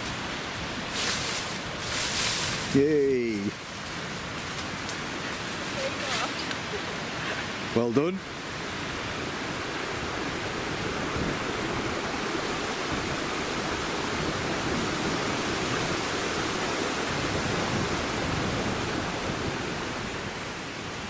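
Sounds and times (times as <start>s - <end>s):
stream running over rocks: 0.0s - 21.0s.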